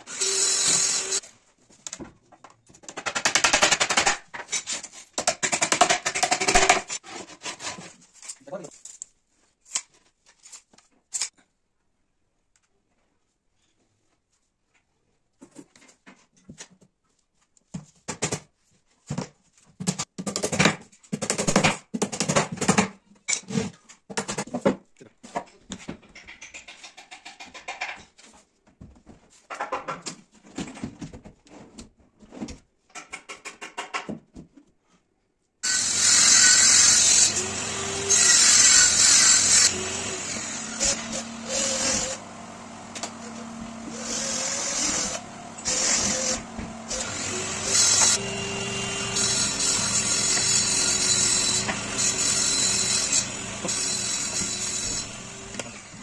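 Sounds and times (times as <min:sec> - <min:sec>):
cordless drill running: 0:00.0 - 0:01.2, 0:35.6 - 0:56.0.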